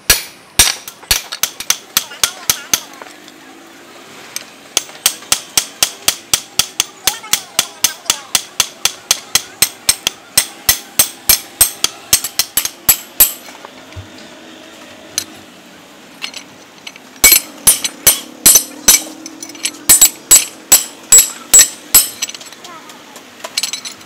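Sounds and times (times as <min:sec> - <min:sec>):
hammer striking steel on anvil: 0:00.0 - 0:03.0, 0:04.8 - 0:13.4, 0:17.2 - 0:22.4.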